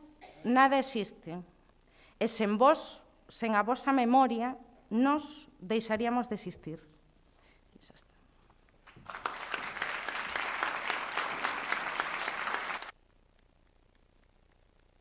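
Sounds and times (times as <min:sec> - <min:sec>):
audience applauding: 0:08.8 - 0:12.9.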